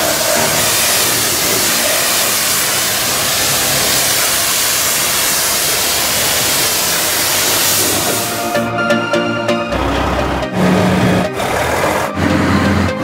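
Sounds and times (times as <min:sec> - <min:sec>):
pressure washer water jet hissing: 0:00.0 - 0:08.7.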